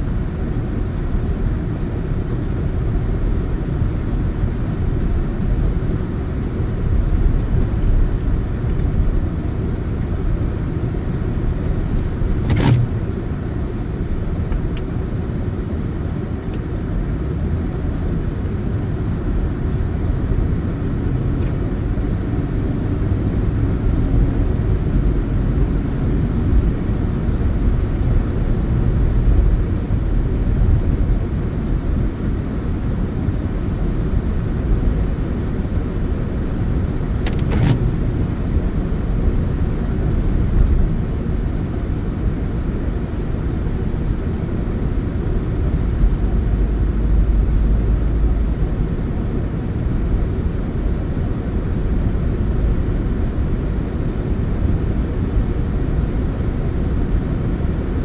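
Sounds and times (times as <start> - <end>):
engine and tyre rumble: 0.0 - 58.0
brief clicks: 37.2 - 38.4.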